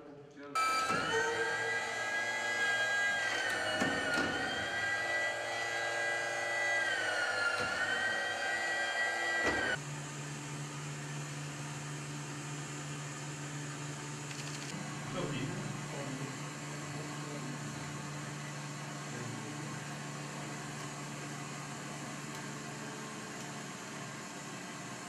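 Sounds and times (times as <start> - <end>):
hydraulic pump whining: 0.6 - 9.9.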